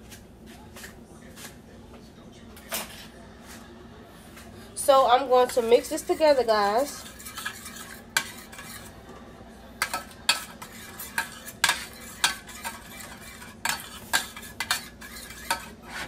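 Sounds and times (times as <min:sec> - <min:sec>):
metal spoon scraping a pan: 0:04.8 - 0:09.0, 0:09.8 - 0:16.0.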